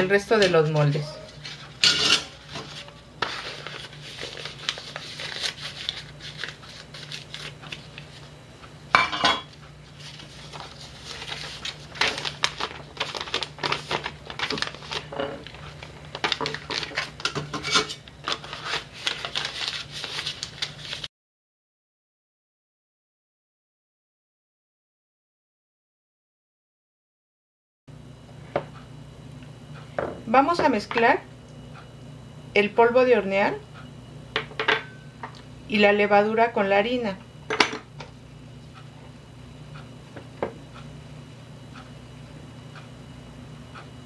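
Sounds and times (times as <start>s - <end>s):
paper rustling: 2.4s - 8.3s, 10.0s - 17.2s, 18.2s - 21.1s.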